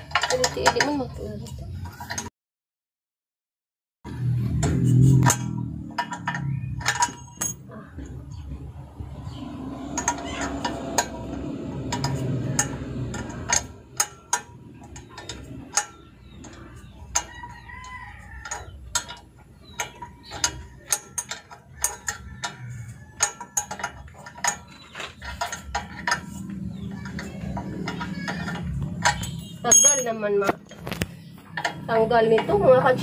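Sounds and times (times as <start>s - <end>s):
metallic clicks and taps: 9.8s - 32.6s.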